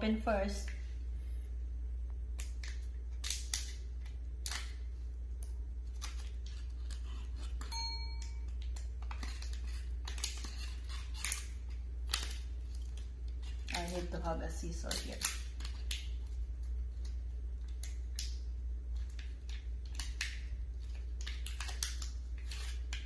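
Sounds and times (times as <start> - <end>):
packet crinkling and tearing: 19.0 - 23.0.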